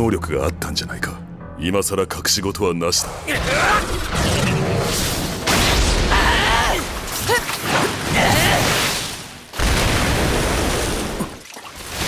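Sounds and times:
shouts of effort: 0:06.1 - 0:07.5.

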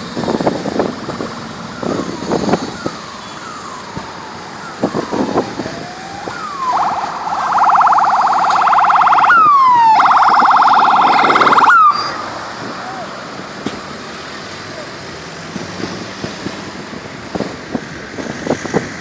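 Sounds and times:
police siren: 0:00.2 - 0:13.1.

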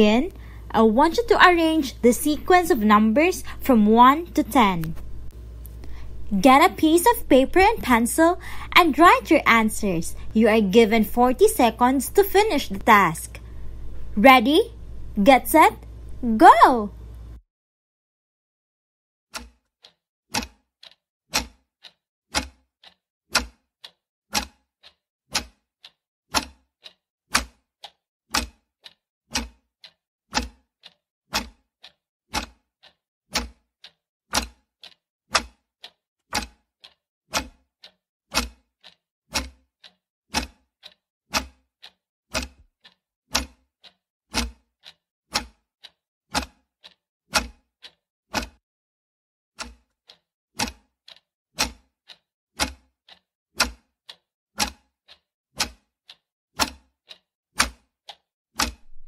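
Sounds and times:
clock ticking: 0:00.0 - 0:13.4, 0:14.2 - 0:16.8, 0:19.4 - 0:48.6, 0:49.6 - 0:59.0.

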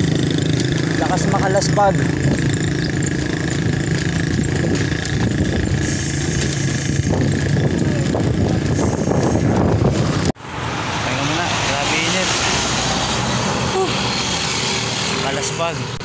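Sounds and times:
motorcycles: 0:00.0 - 0:16.0
vehicle engines running: 0:00.0 - 0:16.0.

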